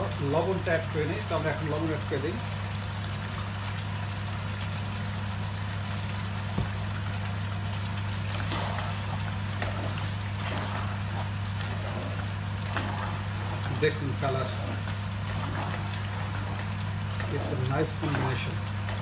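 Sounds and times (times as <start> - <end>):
curry simmering in pan: 0.0 - 19.0
low hum and hiss: 0.0 - 19.0
spatula scraping through sauce: 8.3 - 19.0.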